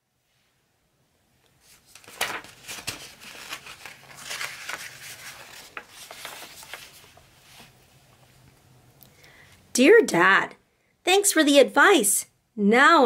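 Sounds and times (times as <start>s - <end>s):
book page turning: 1.6s - 8.5s.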